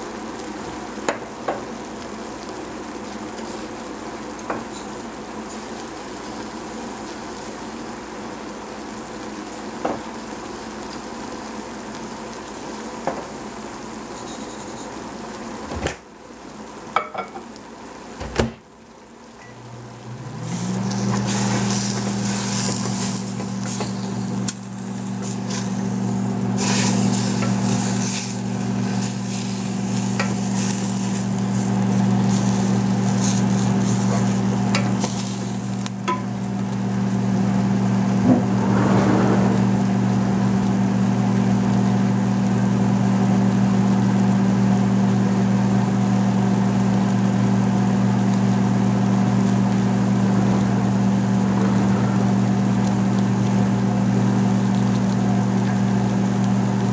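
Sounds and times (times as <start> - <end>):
vegetables sizzling in a pot: 0.0 - 56.9
low motor hum: 19.4 - 42.9, 48.0 - 56.9.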